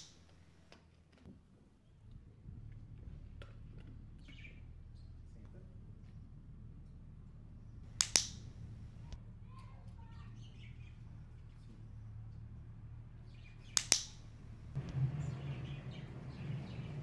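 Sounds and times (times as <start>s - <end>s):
dog training clicker clicks: 7.9s - 9.2s, 13.7s - 14.6s.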